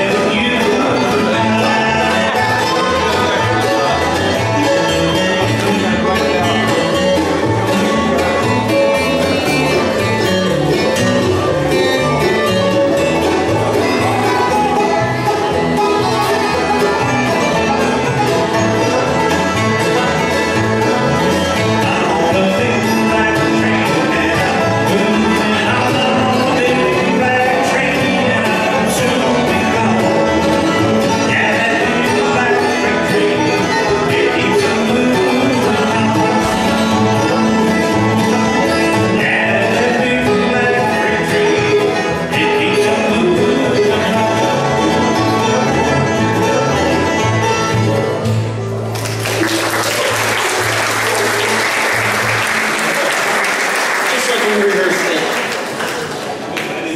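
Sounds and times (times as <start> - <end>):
bluegrass band playing: 0.0 - 56.9
audience applause: 48.9 - 56.9.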